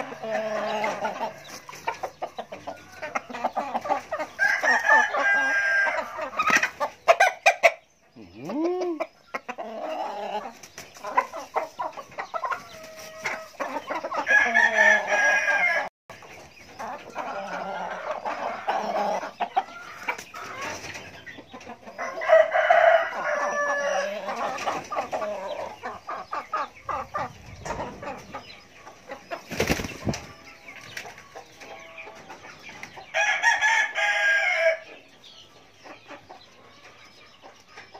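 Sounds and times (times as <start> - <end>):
hens clucking: 0.0 - 37.9
rooster crowing: 4.4 - 6.0, 14.3 - 15.9, 22.0 - 24.2.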